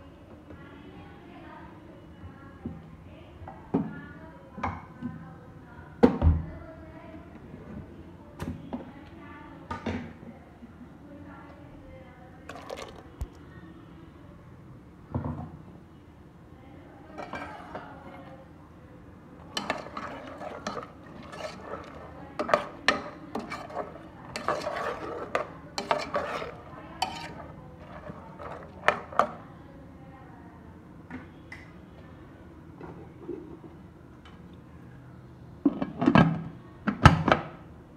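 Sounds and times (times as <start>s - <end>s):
ladle stirring gravy in metal pot: 12.5s - 13.0s, 17.2s - 18.4s, 19.3s - 29.4s
ladle clinking against pot: 19.5s - 29.4s.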